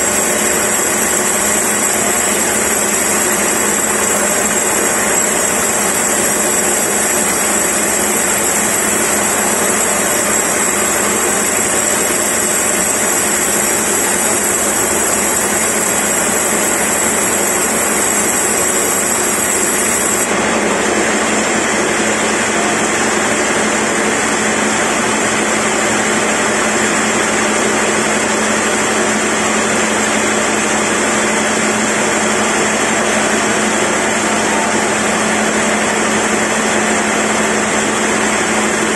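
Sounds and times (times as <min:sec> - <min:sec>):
band saw cutting log: 0:00.0 - 0:20.4.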